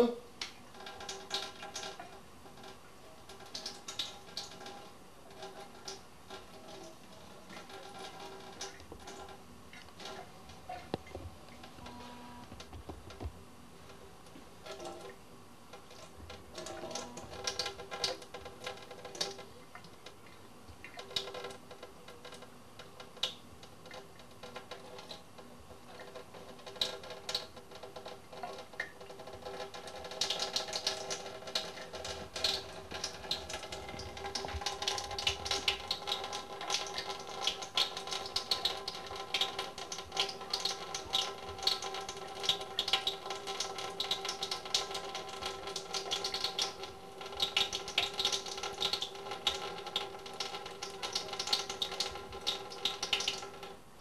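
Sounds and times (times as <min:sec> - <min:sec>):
small water splashes and clicks: 0:00.4 - 0:11.9, 0:14.6 - 0:53.8
tap water running into sink: 0:26.0 - 0:53.8.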